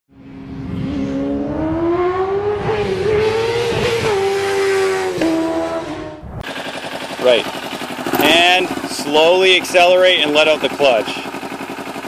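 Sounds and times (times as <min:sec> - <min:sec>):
vehicle engine accelerating hard: 0:00.1 - 0:06.8.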